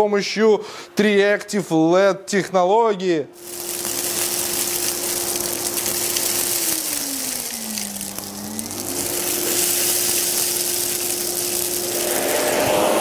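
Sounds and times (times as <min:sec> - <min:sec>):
vacuum cleaner motor whine: 0:03.4 - 0:13.0
vacuum nozzle sucking grain: 0:03.4 - 0:13.0.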